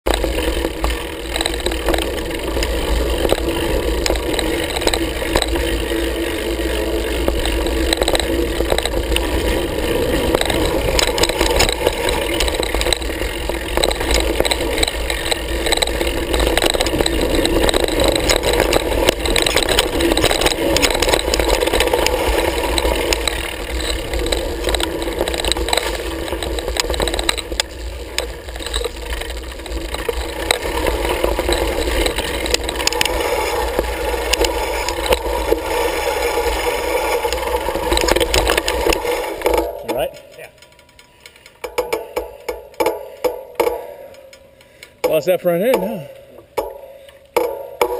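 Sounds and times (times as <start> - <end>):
bike rattling over bumps: 0.0 - 47.9
tyres on loose dirt: 0.0 - 47.9.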